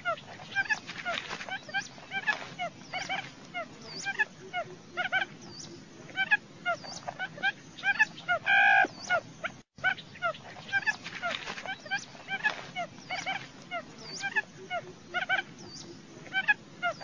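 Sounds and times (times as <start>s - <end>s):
whining bird call: 7.8s - 9.2s.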